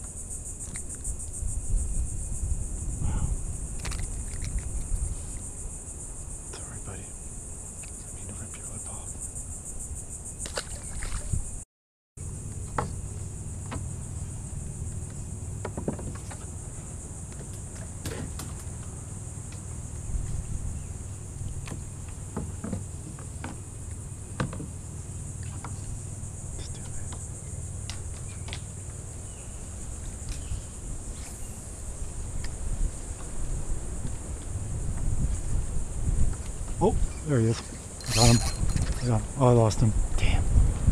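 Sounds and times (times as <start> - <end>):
high-pitched insect chorus: 0.0 - 11.6, 12.2 - 40.6
high-pitched insect drone: 0.0 - 11.6, 36.8 - 40.4
wind rumble on microphone: 0.0 - 11.6, 12.6 - 40.9
paddle knocking and splashing: 3.8 - 4.9, 10.4 - 11.5, 12.5 - 26.0.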